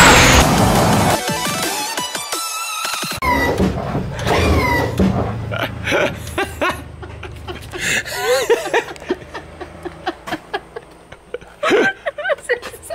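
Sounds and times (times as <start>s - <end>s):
woman giggling and laughing: 5.6s - 12.9s.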